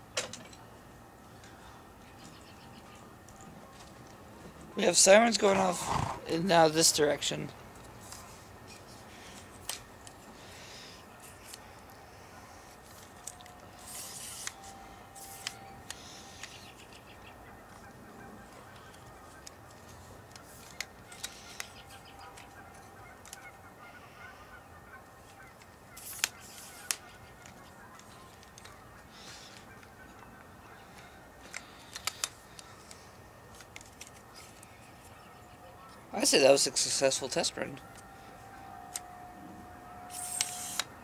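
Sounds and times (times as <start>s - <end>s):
distant tornado sirens: 7.4s - 26.0s, 34.3s - 41.0s.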